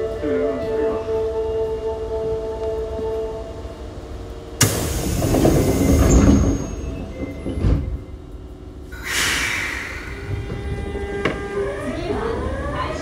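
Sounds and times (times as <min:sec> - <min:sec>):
air hiss: 0:04.6 - 0:06.2, 0:08.9 - 0:10.9
train doors thudding shut: 0:04.6 - 0:08.1, 0:09.0 - 0:11.7
rush of air: 0:08.9 - 0:11.0.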